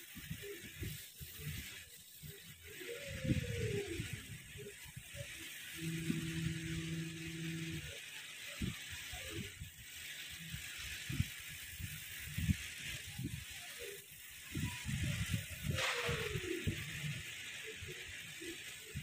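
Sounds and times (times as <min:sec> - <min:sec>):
air hissing: 0:00.0 - 0:19.0
two-tone hum: 0:02.6 - 0:09.5.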